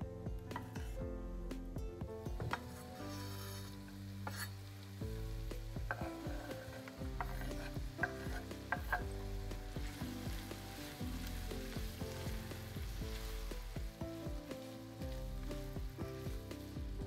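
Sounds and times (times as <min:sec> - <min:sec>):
food sizzling in a frying pan: 0:02.7 - 0:17.0
utensil knocking against pan: 0:05.8 - 0:09.2.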